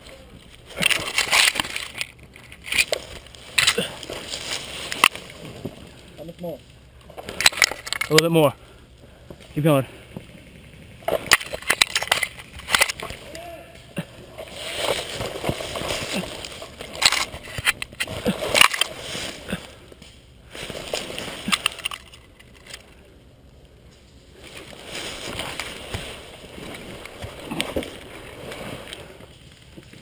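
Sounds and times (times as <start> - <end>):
dry leaves crunching under crawling: 0.1 - 7.4, 12.3 - 19.8, 24.3 - 29.6
twigs snapping: 0.1 - 8.3.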